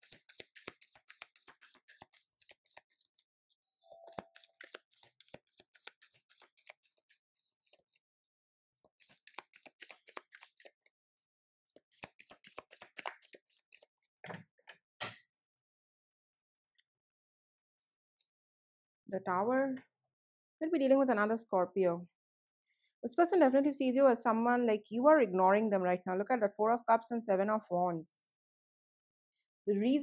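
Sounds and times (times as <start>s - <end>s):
cards being shuffled: 0.0s - 3.2s, 4.1s - 8.0s, 8.8s - 10.9s, 11.8s - 14.1s.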